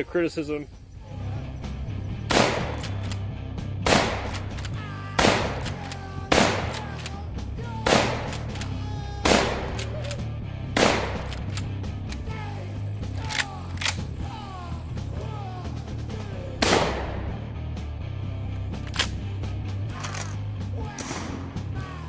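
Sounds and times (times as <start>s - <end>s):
background music: 0.0s - 22.0s
shotgun shots: 2.2s - 7.2s, 7.8s - 11.6s, 16.6s - 17.4s.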